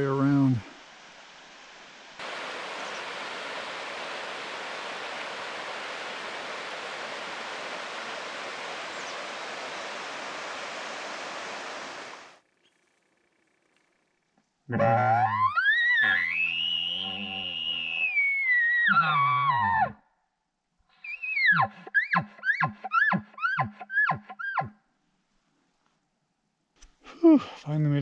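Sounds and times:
waterfall rushing: 0:02.2 - 0:12.4.

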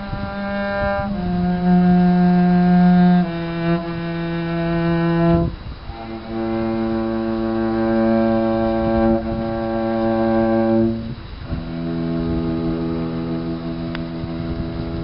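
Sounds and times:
cello bowed in long notes: 0:00.0 - 0:15.0.

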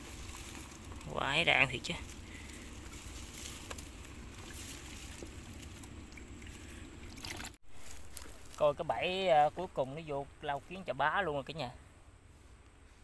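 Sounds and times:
steady low rumble: 0:00.0 - 0:10.7
mesh trap rustling and tapping: 0:02.0 - 0:06.3.

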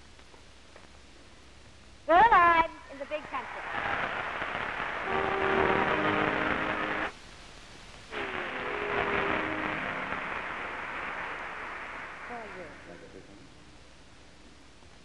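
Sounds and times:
audience applauding: 0:03.6 - 0:07.0.

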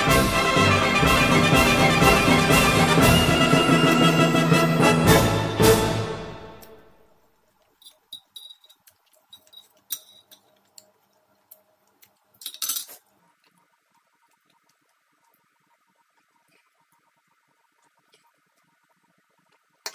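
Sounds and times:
music: 0:00.0 - 0:07.1.

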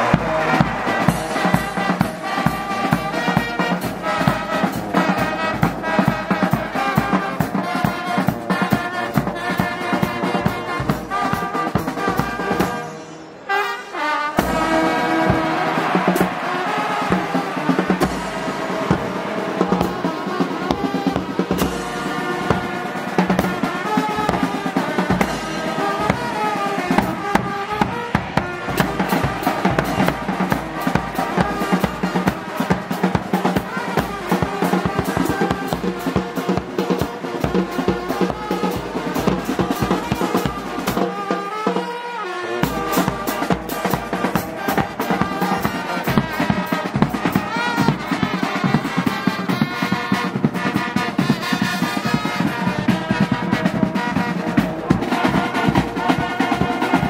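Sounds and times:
snare drum: 0:00.0 - 0:57.0
trombones and brass: 0:00.0 - 0:57.0.

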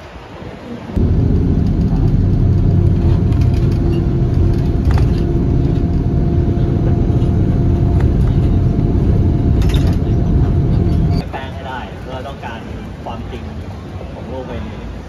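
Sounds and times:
bus engine and road rumble: 0:00.0 - 0:15.0
held hum: 0:01.0 - 0:11.2.

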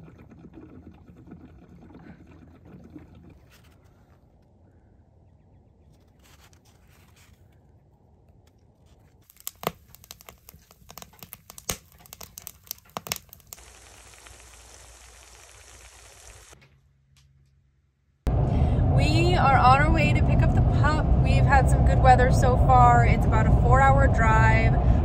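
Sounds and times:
logs crackling in a wood stove: 0:08.8 - 0:17.6
eggs sizzling in a skillet: 0:09.3 - 0:16.6.

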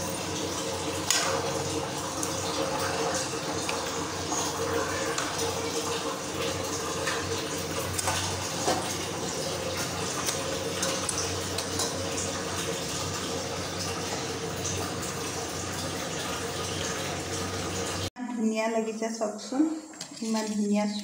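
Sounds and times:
curry bubbling in a pan: 0:00.0 - 0:16.0.

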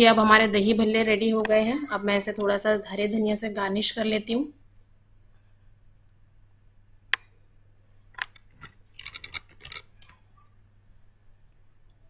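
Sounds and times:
quick clicks and scratchy rasps: 0:08.2 - 0:10.2.

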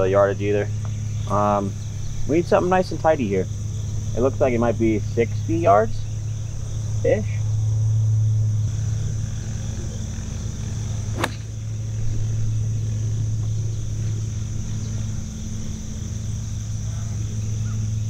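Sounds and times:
insect buzz: 0:00.0 - 0:18.0
low hum: 0:00.0 - 0:18.0
golf club striking ball: 0:11.0 - 0:12.2.

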